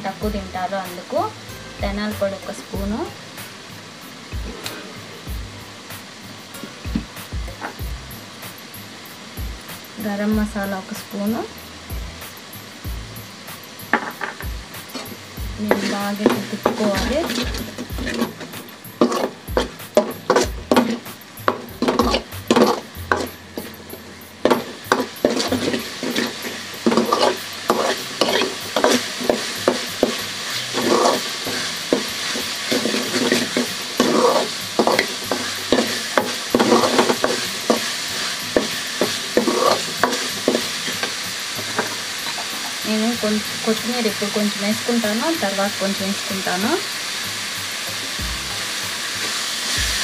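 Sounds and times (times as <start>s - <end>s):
paste sizzling in oil: 0.0s - 50.0s
ladle scraping metal pan: 14.9s - 42.5s.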